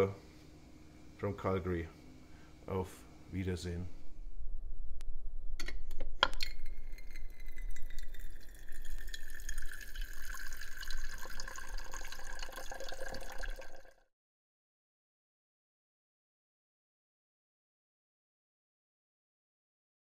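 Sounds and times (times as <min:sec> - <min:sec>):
water running into a glass: 0:06.4 - 0:14.0.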